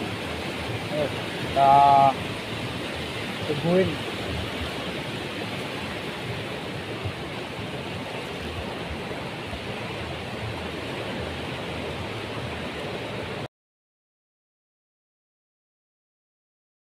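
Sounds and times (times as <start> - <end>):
small waves washing onto beach: 0.0 - 13.5.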